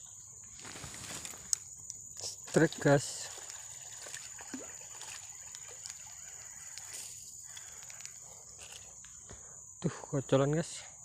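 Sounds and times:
insects droning: 0:00.0 - 0:11.0
fish splashing in water: 0:03.2 - 0:06.9.

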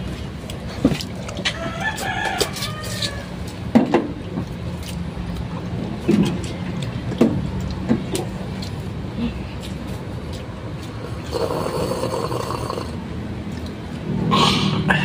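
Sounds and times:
rooster crowing: 0:01.4 - 0:03.4.

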